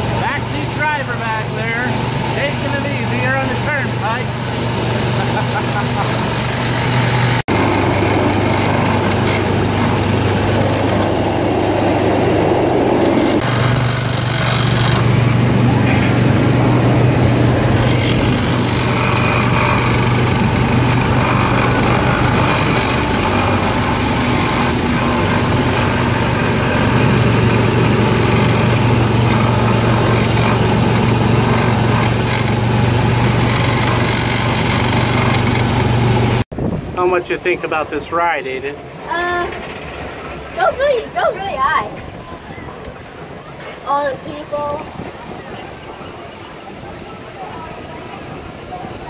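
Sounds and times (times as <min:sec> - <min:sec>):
small gasoline engine running: 0:00.0 - 0:36.5.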